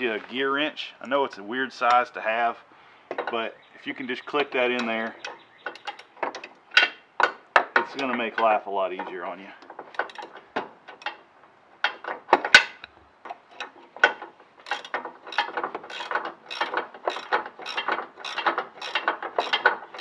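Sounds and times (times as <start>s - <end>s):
ratcheting wrench clicking: 5.2s - 8.1s, 9.9s - 11.2s, 11.8s - 20.0s.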